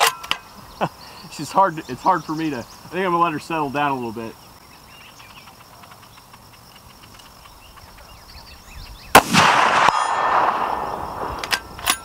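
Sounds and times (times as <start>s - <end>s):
rifle shot with echo: 9.1s - 12.0s.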